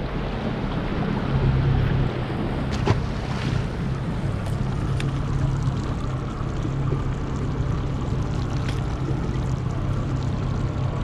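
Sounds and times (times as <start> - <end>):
water noise: 0.0 - 11.0
wind: 0.0 - 11.0
outboard motor idling: 2.4 - 11.0.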